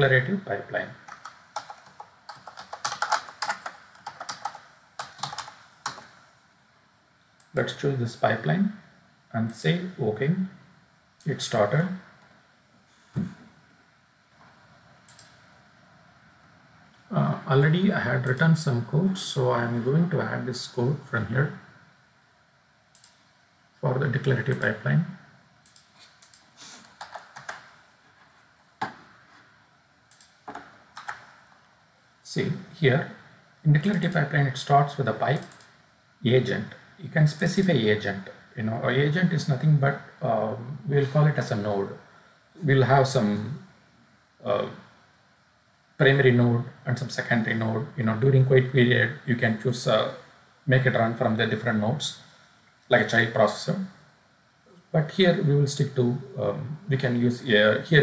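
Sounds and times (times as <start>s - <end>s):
typing on computer keyboard: 1.1s - 6.1s, 25.7s - 27.6s, 30.1s - 30.3s, 31.0s - 31.2s, 35.4s - 35.7s.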